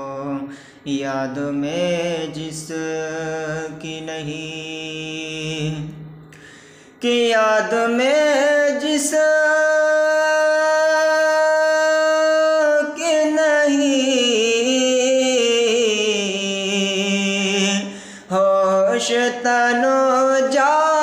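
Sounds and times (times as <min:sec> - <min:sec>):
man singing unaccompanied: 0:00.0 - 0:06.0, 0:07.0 - 0:21.0
singer breathing: 0:00.4 - 0:00.9, 0:06.2 - 0:07.0, 0:17.8 - 0:18.3.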